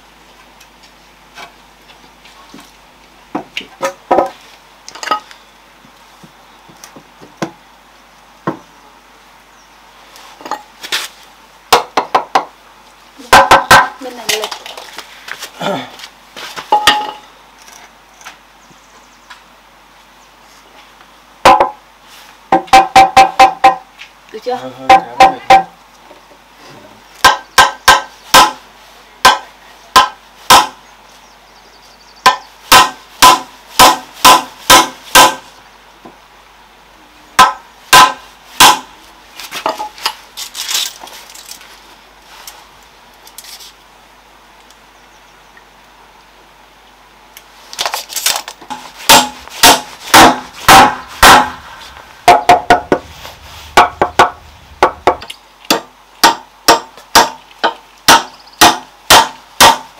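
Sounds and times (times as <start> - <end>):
hammer striking nails into wood: 27.2 - 28.6, 29.2 - 29.4, 30.0 - 30.7, 32.3 - 35.4, 49.1 - 51.6, 53.8 - 59.9.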